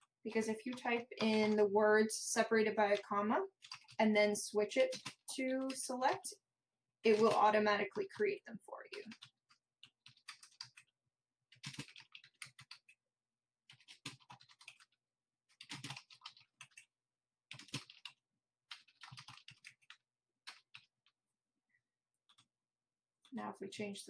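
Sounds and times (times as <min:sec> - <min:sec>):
faint keyboard typing: 0:00.0 - 0:01.7, 0:02.6 - 0:04.0, 0:04.6 - 0:06.3, 0:07.1 - 0:10.9, 0:11.5 - 0:13.0, 0:13.7 - 0:16.9, 0:17.5 - 0:21.2, 0:22.2 - 0:22.5.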